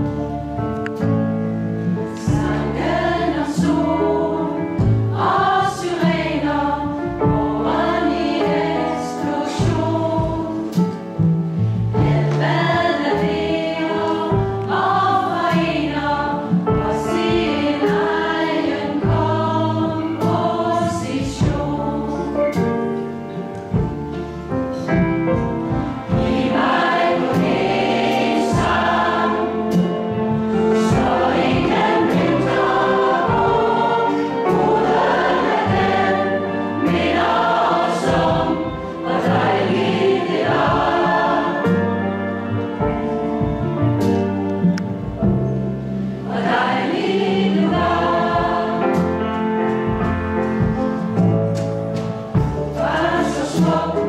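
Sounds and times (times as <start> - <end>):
band accompaniment: 0.0 - 54.0
large mixed choir singing: 1.8 - 23.9, 24.8 - 44.9, 45.7 - 51.2, 52.3 - 54.0.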